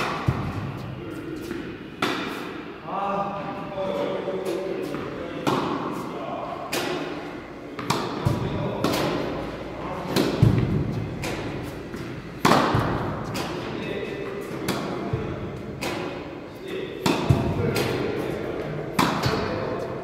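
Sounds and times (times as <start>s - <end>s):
tennis ball bouncing: 0.0s - 2.5s, 4.4s - 5.9s, 7.8s - 9.4s, 10.1s - 16.3s, 17.0s - 18.1s, 18.9s - 19.6s
tennis racket hitting ball: 0.0s - 2.6s, 4.4s - 6.0s, 6.7s - 16.4s, 17.0s - 20.0s.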